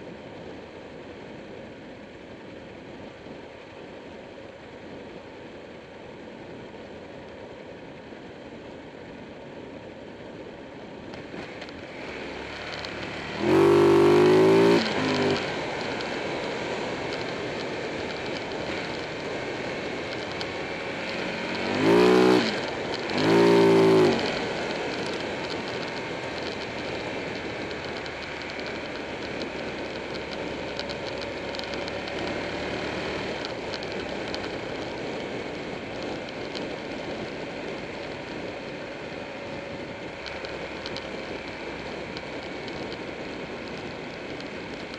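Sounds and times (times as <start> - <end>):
wind and road noise: 0.0 - 44.9
motorcycle engine revving: 11.2 - 37.2.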